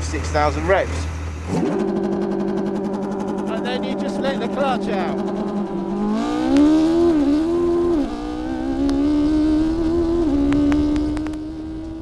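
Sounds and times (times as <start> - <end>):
car engine revving: 0.0 - 12.0.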